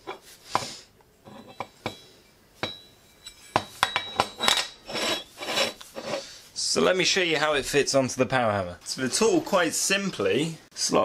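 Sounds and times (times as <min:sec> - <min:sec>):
metal clinks and knocks: 0:01.3 - 0:05.4.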